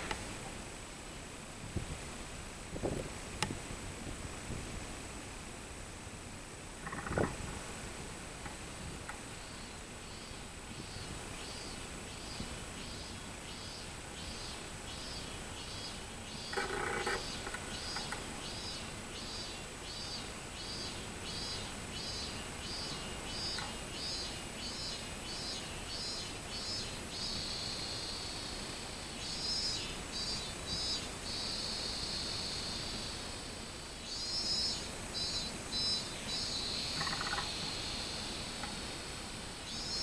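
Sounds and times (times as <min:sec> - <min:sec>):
cicada singing: 0:06.6 - 0:40.0
low animal call: 0:06.8 - 0:07.5, 0:16.5 - 0:18.2.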